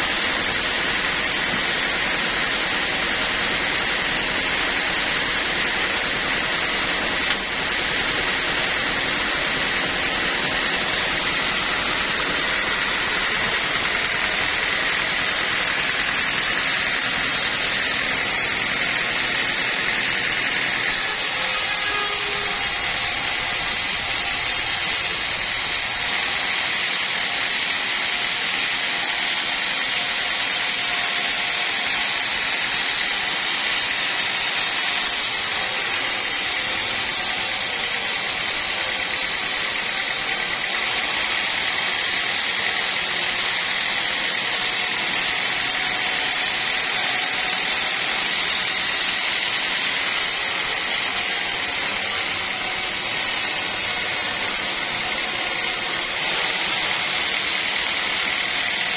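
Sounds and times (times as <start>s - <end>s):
band saw cutting wood: 0.0s - 58.9s.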